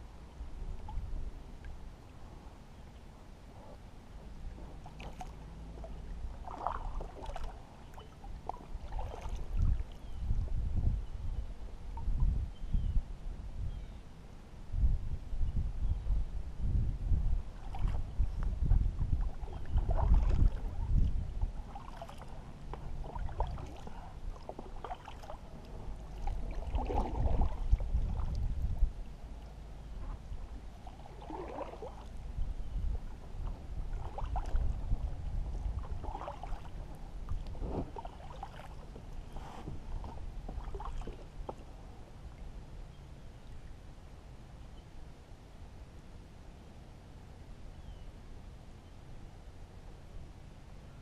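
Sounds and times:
paddle strokes in water: 3.5s - 10.2s, 17.5s - 32.2s, 32.9s - 42.5s
low thumps and rumbling: 16.0s - 21.7s, 36.8s - 38.1s, 38.8s - 41.9s.

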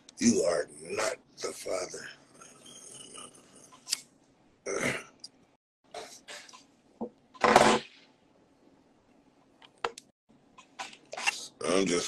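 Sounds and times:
man's throat and breath sounds: 2.2s - 3.9s.

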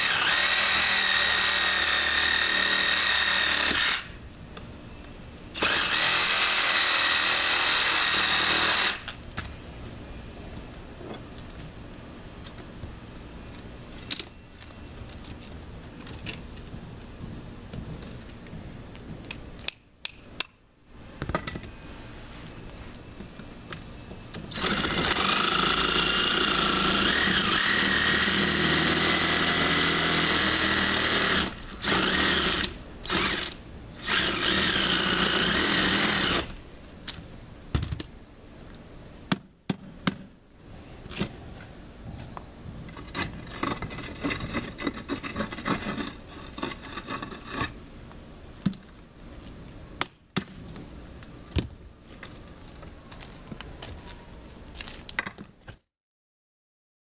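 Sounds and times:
cordless power tool motor running: 0.0s - 4.1s, 24.4s - 36.5s
knocks and scraping: 41.1s - 47.8s.

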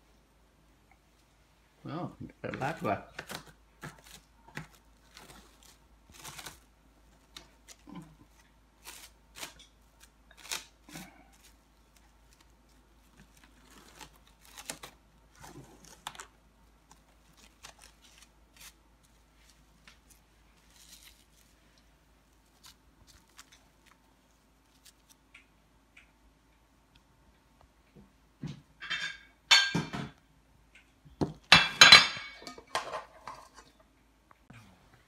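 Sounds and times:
plastic cling wrap crinkling: 2.6s - 25.4s.

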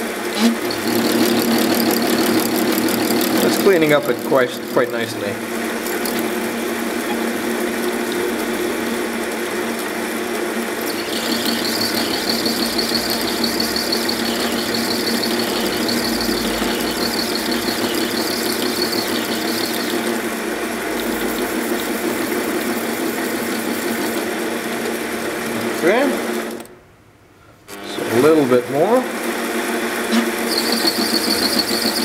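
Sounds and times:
lathe motor humming: 0.0s - 26.6s, 27.7s - 32.0s
high-pitched cutting squeal: 0.3s - 5.1s, 10.8s - 24.2s, 30.1s - 32.0s.

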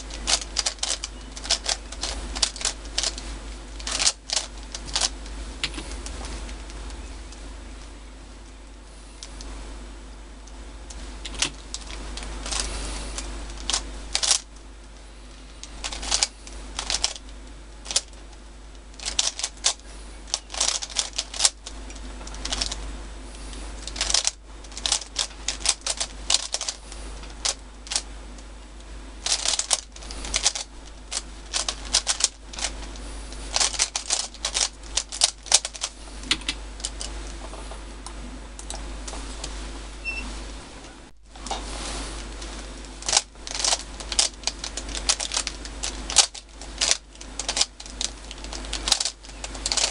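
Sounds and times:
puzzle cube clicking turns: 0.1s - 3.2s, 3.8s - 7.0s, 11.2s - 14.5s, 15.6s - 18.2s, 19.0s - 22.8s, 23.8s - 28.0s, 29.2s - 37.1s, 43.0s - 49.9s.

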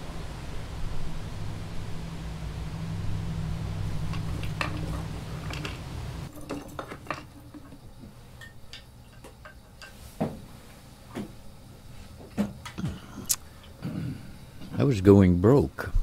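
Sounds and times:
steady low rumble: 0.0s - 6.3s
light clicks and clinks: 4.1s - 10.0s.

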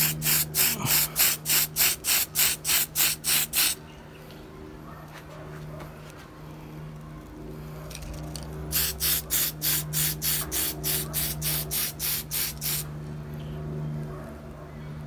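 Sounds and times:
spray can hissing bursts: 0.0s - 3.8s, 8.7s - 12.9s.

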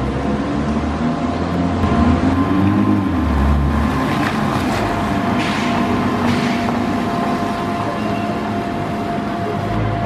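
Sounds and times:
car engine pulling away: 0.0s - 7.7s
tyres hissing on wet pavement: 3.8s - 9.6s.

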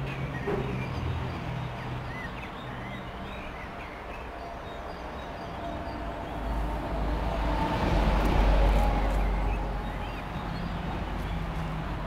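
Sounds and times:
freight train rumbling past: 4.6s - 12.0s.

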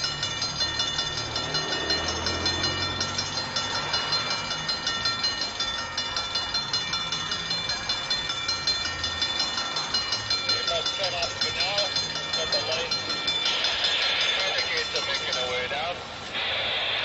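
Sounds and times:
high-pitched ringing tone: 0.0s - 15.9s
locomotive engine rumble: 0.0s - 17.0s
snow rushing: 10.5s - 17.0s.

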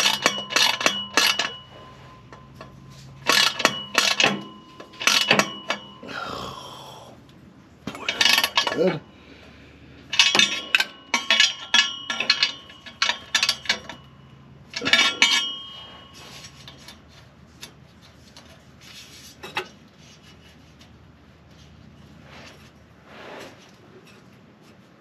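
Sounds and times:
metal pieces clanking: 0.0s - 6.0s, 7.9s - 9.0s, 10.1s - 14.1s, 14.7s - 16.9s.

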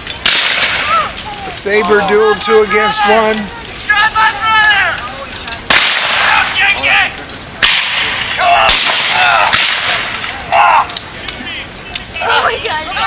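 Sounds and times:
gunshot cracks: 0.2s - 1.0s, 5.7s - 6.4s, 7.6s - 10.2s
men shouting: 0.7s - 5.4s, 6.0s - 7.2s, 8.2s - 13.0s.

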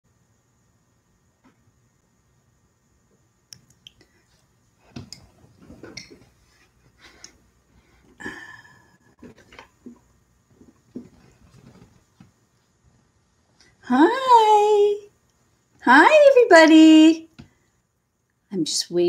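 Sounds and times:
rustling: 9.2s - 12.8s.

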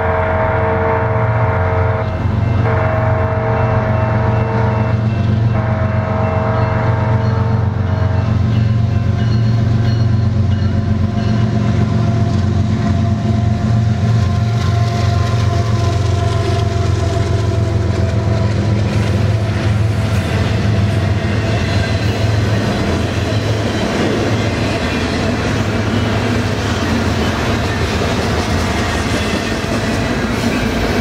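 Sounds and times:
diesel locomotive engine drone: 0.0s - 31.0s
train wheels clattering over rails: 7.2s - 31.0s.

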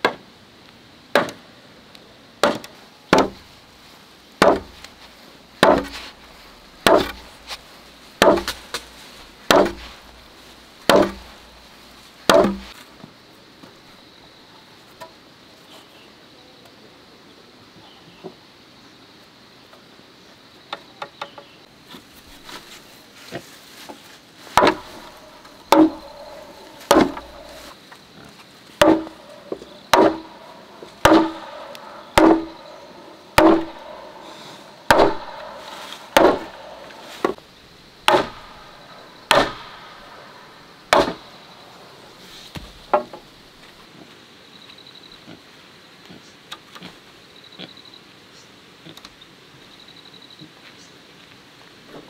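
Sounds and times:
wooden mallet pounding timber: 1.2s - 1.4s, 2.4s - 3.5s, 4.4s - 5.0s, 5.6s - 7.6s, 8.2s - 8.9s, 9.5s - 10.2s, 10.8s - 11.5s, 12.3s - 12.7s, 24.6s - 27.7s, 28.8s - 37.4s, 38.0s - 40.3s, 40.9s - 41.4s, 42.5s - 43.3s.

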